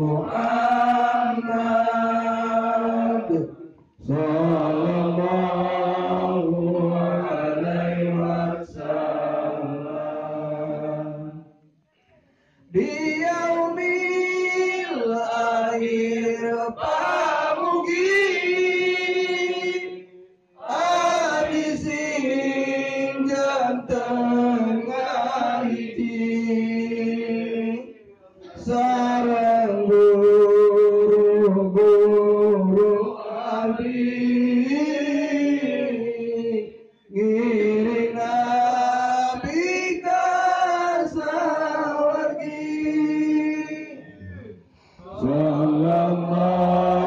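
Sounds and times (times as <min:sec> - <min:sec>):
man chanting through loudspeaker: 0:20.7 - 0:24.0, 0:34.2 - 0:47.0.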